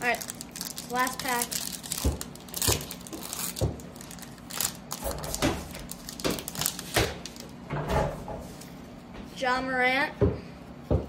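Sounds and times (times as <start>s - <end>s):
foil wrapper tearing and crinkling: 0.0s - 7.5s.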